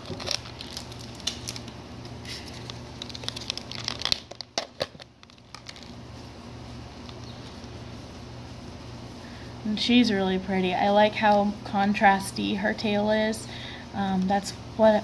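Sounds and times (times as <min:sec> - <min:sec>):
plastic cup handling: 0:00.0 - 0:06.0
low steady hum: 0:00.0 - 0:15.0
plastic lid crinkling and clicking: 0:02.6 - 0:05.9.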